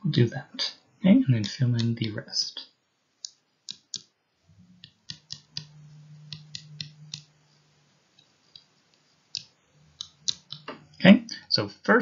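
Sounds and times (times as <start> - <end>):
faint low hum: 0.0 - 12.0
stylus tapping on touchscreen: 3.2 - 4.1, 4.8 - 7.3, 9.3 - 10.9.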